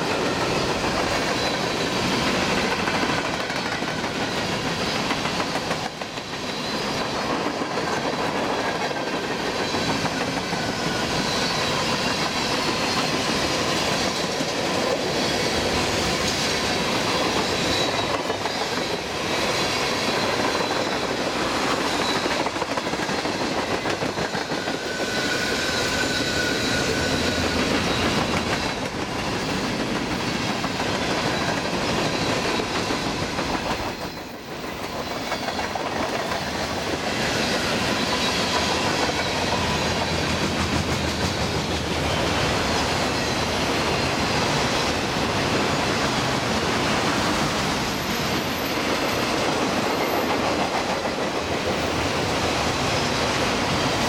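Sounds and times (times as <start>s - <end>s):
freight train wheels clattering: 0.0s - 54.0s
high squealing tones: 24.7s - 28.8s.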